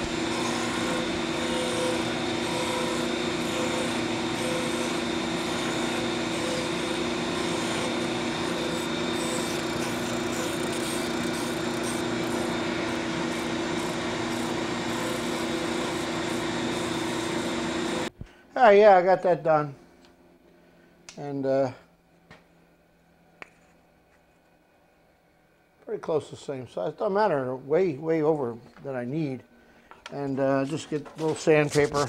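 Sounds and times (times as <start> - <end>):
disc sander motor hum: 0.0 - 18.1
wood being sanded: 0.0 - 18.1.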